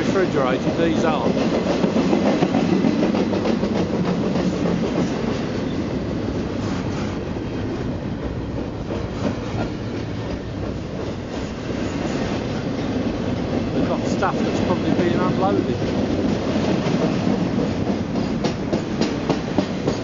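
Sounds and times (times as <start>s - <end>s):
freight train wheels rumbling: 0.0s - 20.0s
rail clacks: 0.0s - 20.0s.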